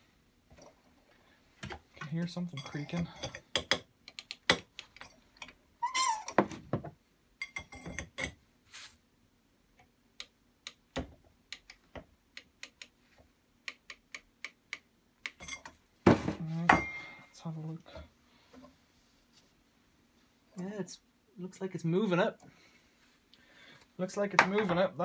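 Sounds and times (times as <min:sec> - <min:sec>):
metal creak: 0:05.8 - 0:06.5.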